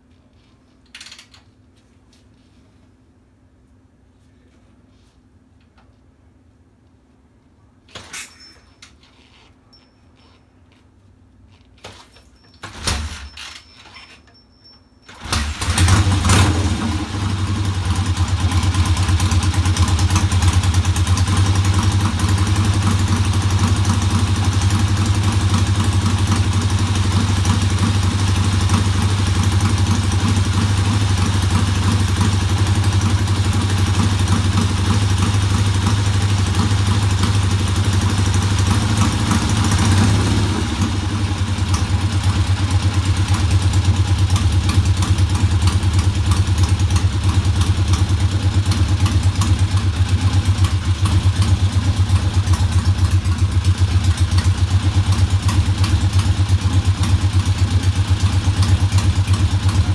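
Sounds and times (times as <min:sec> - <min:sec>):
kick-start clunks: 0:11.8 - 0:16.3
motorcycle engine running: 0:15.3 - 0:59.9.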